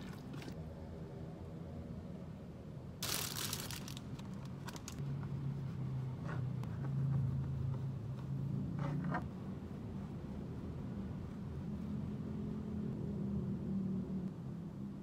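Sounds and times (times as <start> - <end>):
steady low hum: 0.1 - 15.0
crinkling rustle: 3.0 - 5.0.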